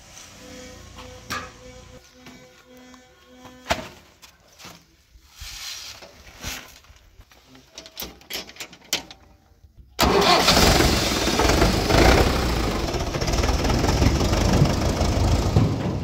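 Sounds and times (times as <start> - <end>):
tractor diesel engine: 10.0 - 16.0.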